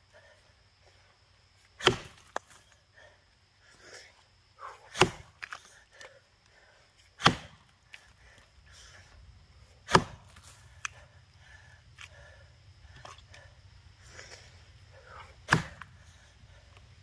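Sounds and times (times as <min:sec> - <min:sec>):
axe chopping log: 0:01.8 - 0:02.6, 0:04.9 - 0:05.7, 0:07.2 - 0:07.7, 0:09.8 - 0:11.0, 0:15.4 - 0:16.0.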